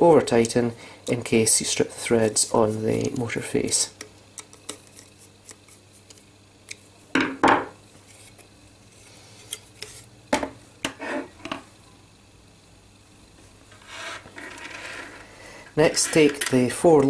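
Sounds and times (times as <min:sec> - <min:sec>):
knocks on a table: 0:07.2 - 0:07.7.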